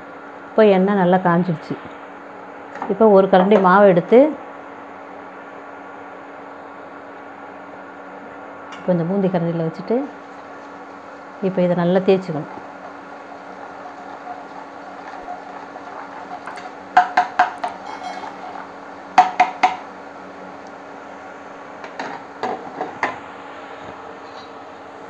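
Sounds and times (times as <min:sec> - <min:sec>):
batter sizzling in hot oil: 0:10.0 - 0:22.4.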